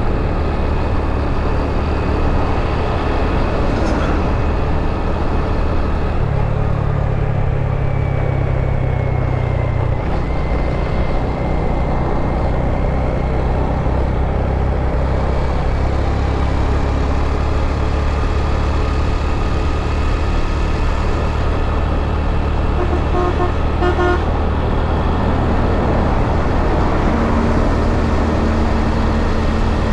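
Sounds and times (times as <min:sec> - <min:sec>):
wind and road noise: 0:00.0 - 0:29.9
vehicle horn toots: 0:22.7 - 0:24.3.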